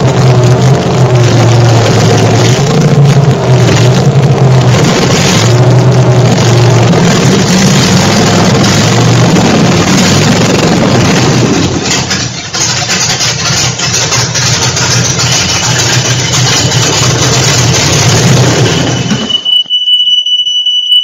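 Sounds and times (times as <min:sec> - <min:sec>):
engine running: 0:00.0 - 0:19.4.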